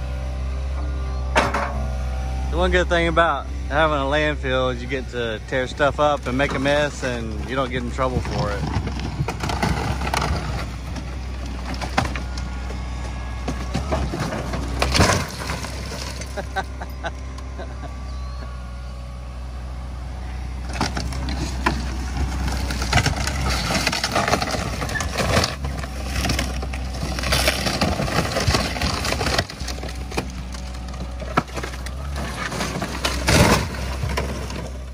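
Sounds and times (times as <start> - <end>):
diesel engine low hum: 0.0 - 34.9
scrap crunching and cracking: 4.4 - 18.0, 20.6 - 34.9.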